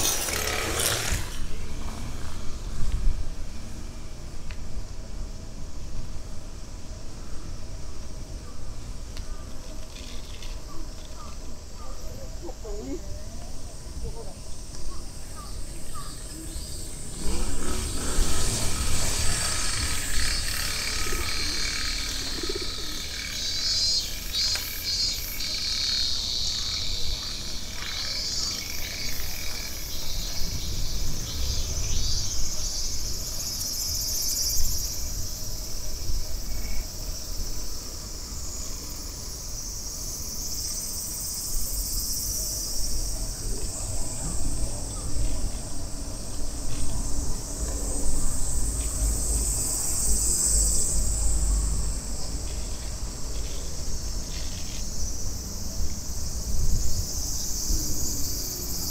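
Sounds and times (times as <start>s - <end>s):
cicadas buzzing: 0.0s - 58.9s
low rumble: 16.6s - 22.8s.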